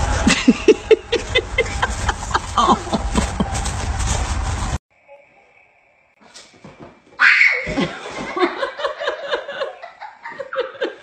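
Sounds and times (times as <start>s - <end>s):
person laughing hard: 0.2s - 3.6s.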